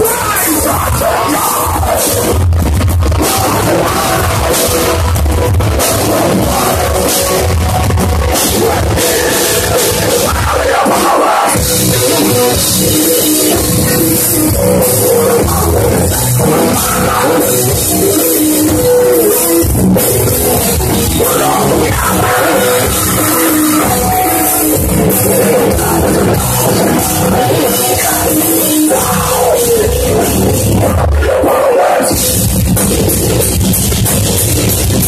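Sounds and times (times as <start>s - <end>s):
distorted electric guitars: 0.0s - 35.0s
pounding drum kit: 0.0s - 35.0s.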